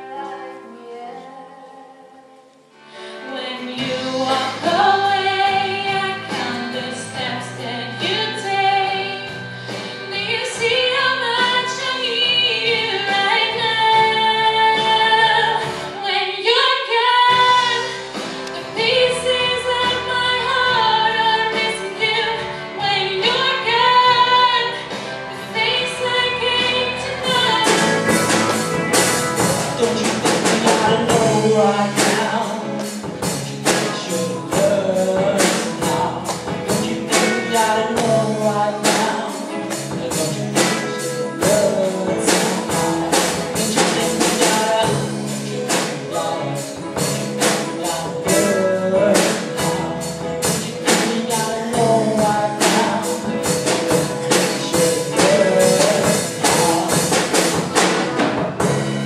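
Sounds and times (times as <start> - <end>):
woman singing slow song: 0.0 - 9.4, 10.0 - 28.4, 29.7 - 57.4
drums and cymbals: 3.8 - 16.0, 17.3 - 59.0
electric guitar: 17.2 - 59.0
man singing: 29.4 - 58.0.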